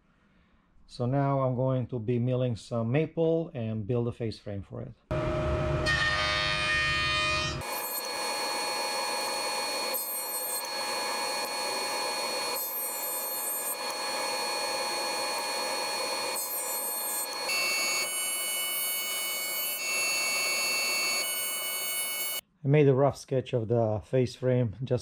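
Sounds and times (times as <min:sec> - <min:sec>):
thickness planer milling board: 0:05.8 - 0:22.4
jointer motor running: 0:07.6 - 0:22.4.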